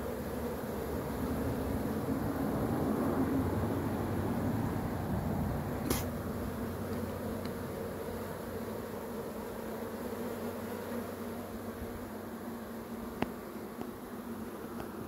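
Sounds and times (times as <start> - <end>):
bees buzzing: 0.0 - 15.0
sharp click: 5.8 - 6.1.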